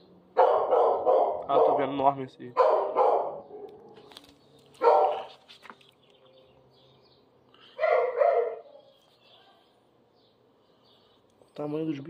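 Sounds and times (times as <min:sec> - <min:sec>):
dog barking: 0:00.4 - 0:02.0, 0:02.6 - 0:04.0, 0:04.8 - 0:05.4, 0:07.8 - 0:09.7.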